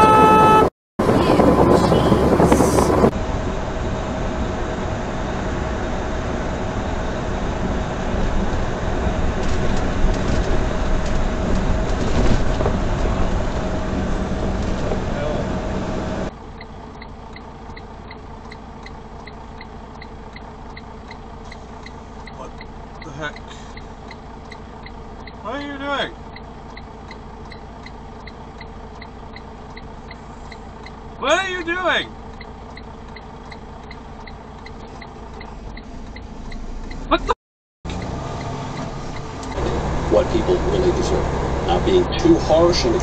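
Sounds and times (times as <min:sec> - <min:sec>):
truck engine idling: 0:00.0 - 0:43.0
turn signal flasher clicking: 0:16.4 - 0:31.2, 0:32.1 - 0:37.3, 0:37.9 - 0:39.8
rising squeak: 0:37.9 - 0:42.2.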